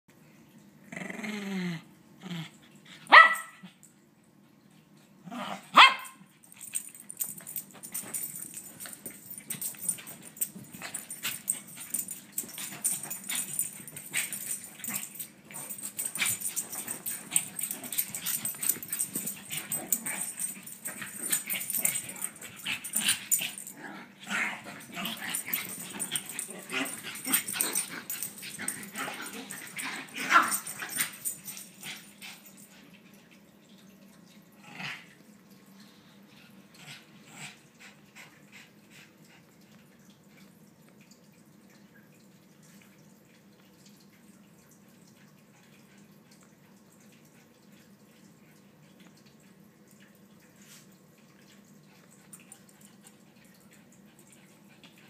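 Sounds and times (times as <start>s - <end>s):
dog growling: 0.9s - 2.6s, 19.5s - 31.2s
dog barking: 3.1s - 3.6s, 5.8s - 6.2s.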